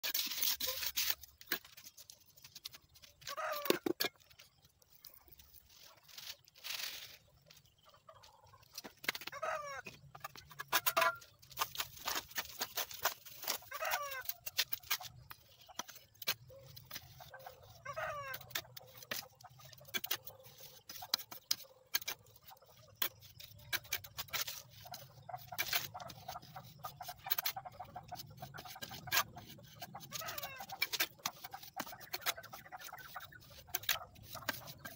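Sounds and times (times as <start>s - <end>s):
steel trowel scraping and tapping: 0.0s - 7.7s, 8.6s - 34.9s
chicken calling: 9.3s - 9.9s.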